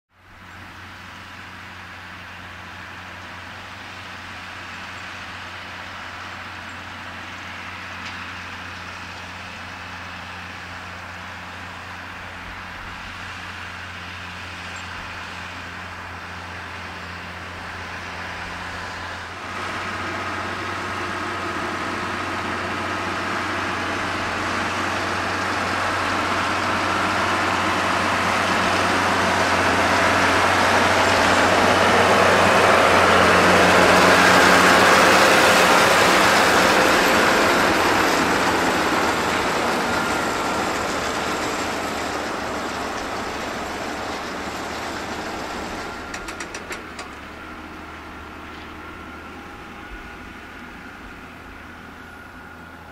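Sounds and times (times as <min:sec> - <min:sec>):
tractor diesel engine running: 0:00.1 - 0:52.9
round baler working: 0:00.2 - 0:52.9.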